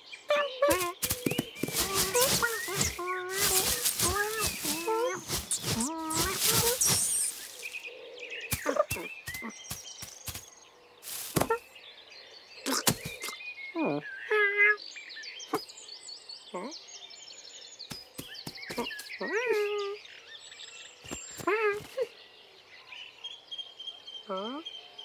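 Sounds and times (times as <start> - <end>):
small bird tweeting: 0.0 - 16.8, 17.7 - 22.2
rustle through hay: 0.7 - 7.8, 8.5 - 11.6.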